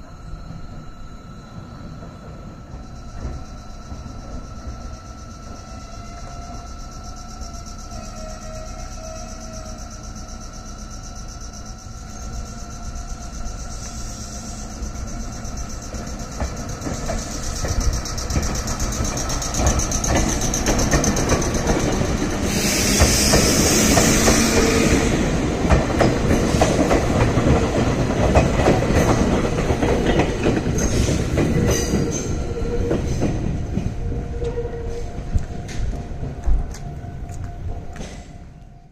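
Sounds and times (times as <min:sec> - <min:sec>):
crossing warning signal ringing: 0:00.0 - 0:38.9
electric train running past: 0:00.0 - 0:38.9
wheels clacking over rail joints: 0:15.9 - 0:34.6
loud hiss: 0:22.2 - 0:25.1.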